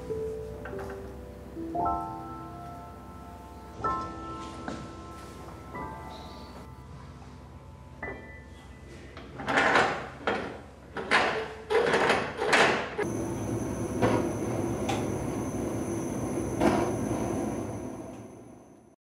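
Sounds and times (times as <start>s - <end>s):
gas burners rushing: 13.0s - 18.8s
faint high whine: 13.0s - 19.0s.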